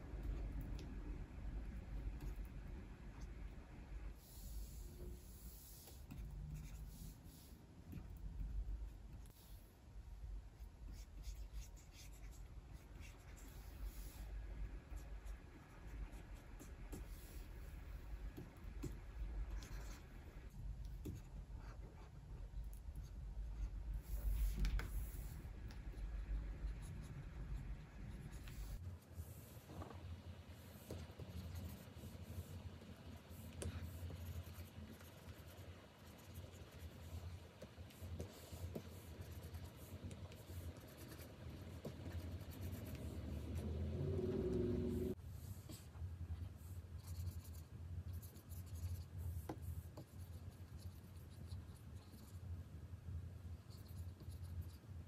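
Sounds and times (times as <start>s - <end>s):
stylus scratching and tapping screen: 4.5s - 9.6s, 10.6s - 52.4s, 53.6s - 55.0s.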